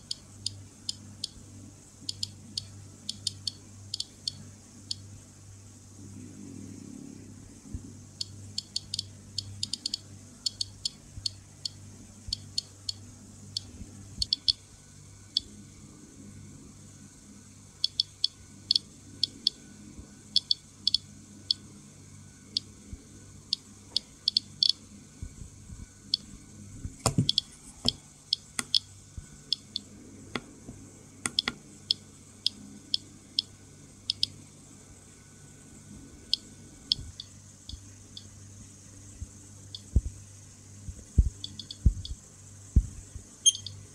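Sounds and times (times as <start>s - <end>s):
geiger counter clicking: 0.0s - 1.4s, 2.0s - 5.0s, 8.2s - 14.6s, 17.8s - 19.6s, 20.4s - 21.6s, 23.5s - 24.8s, 27.1s - 28.9s, 29.5s - 30.5s, 31.2s - 33.5s, 34.1s - 34.4s, 36.3s - 38.3s, 39.7s - 40.0s, 41.4s - 42.2s, 43.4s - 43.8s.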